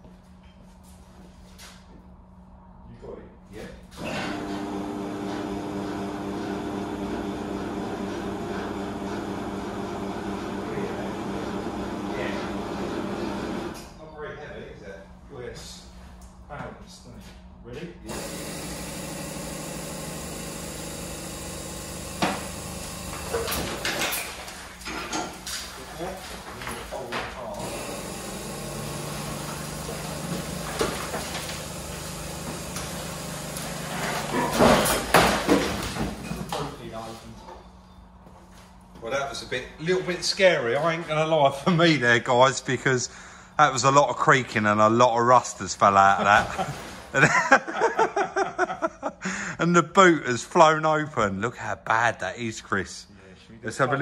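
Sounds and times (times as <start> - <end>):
electric machine humming: 4.0 - 13.9, 18.1 - 24.5, 27.5 - 35.0.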